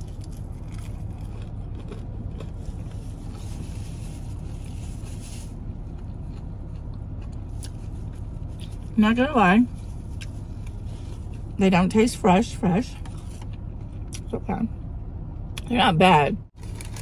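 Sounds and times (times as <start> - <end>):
faint chewing: 0.0 - 9.0, 9.7 - 11.5
car idling hum: 0.0 - 17.0
paper napkin rustling: 2.9 - 5.6.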